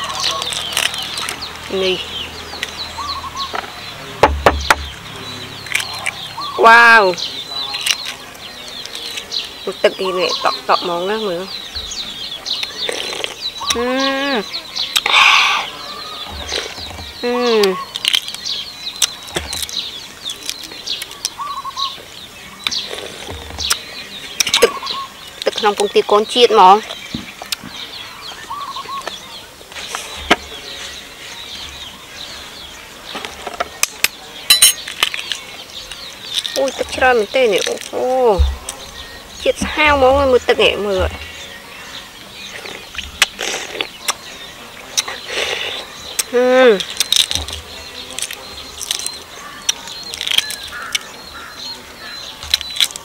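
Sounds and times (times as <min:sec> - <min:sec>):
small birds chirping: 0:00.0 - 0:53.0
egg shell crackling as peeled: 0:48.2 - 0:49.2, 0:50.1 - 0:51.0.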